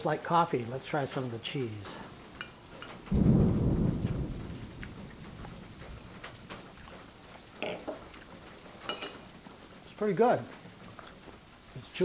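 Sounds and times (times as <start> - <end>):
muffled chewing: 10.8 - 11.5.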